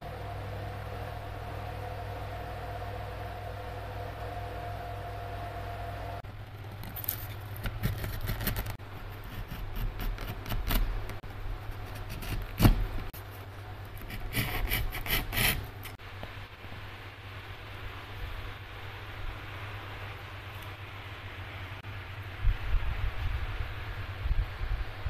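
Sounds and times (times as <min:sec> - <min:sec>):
chisel scraping wood: 0:06.8 - 0:10.9, 0:11.7 - 0:13.1, 0:14.0 - 0:16.0.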